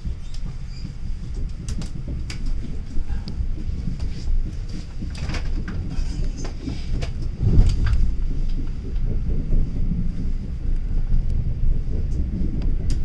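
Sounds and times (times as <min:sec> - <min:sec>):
clicks and rattles: 0:00.0 - 0:09.2
train wheels rumbling on rails: 0:00.0 - 0:13.0
heavy thump: 0:01.4 - 0:12.8.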